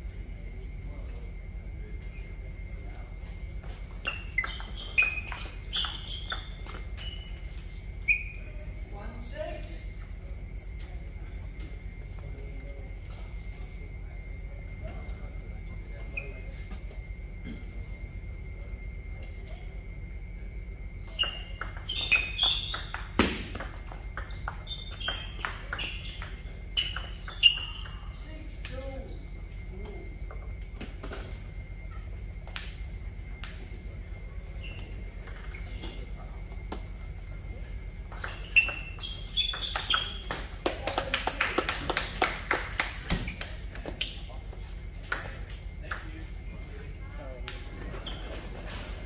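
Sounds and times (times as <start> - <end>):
sneakers squeaking on floor: 3.7 - 8.8, 21.0 - 28.3, 34.5 - 40.6, 42.8 - 45.4, 47.9 - 49.0.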